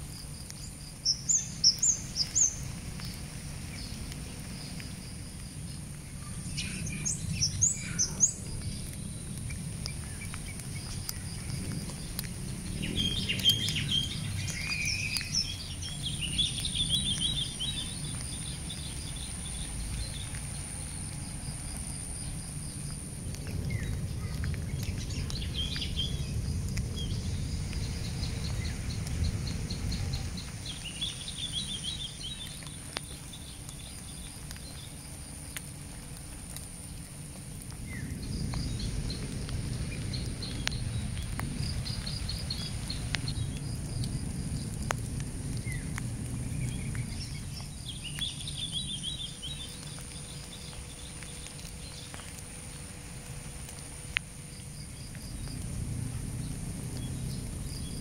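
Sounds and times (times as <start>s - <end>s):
high insect drone: 0.0s - 58.0s
wind rumbling on microphone: 0.0s - 58.0s
birds chirping: 0.5s - 4.8s, 5.6s - 35.6s, 37.8s - 44.8s, 45.6s - 53.8s
light ticks: 8.4s - 29.5s, 31.9s - 56.2s.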